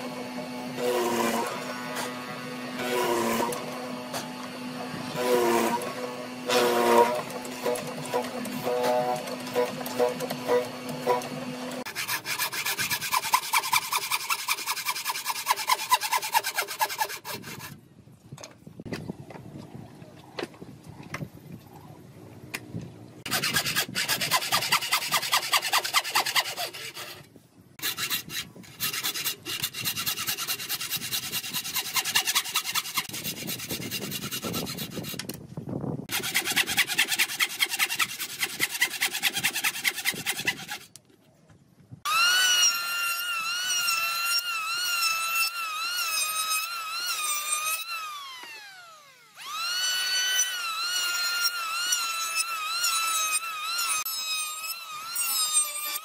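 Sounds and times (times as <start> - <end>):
electric hand planer whining: 0.0 - 17.6, 42.1 - 56.0
bow saw cutting wood: 0.0 - 17.8, 23.2 - 35.4, 36.0 - 41.0, 42.1 - 56.0.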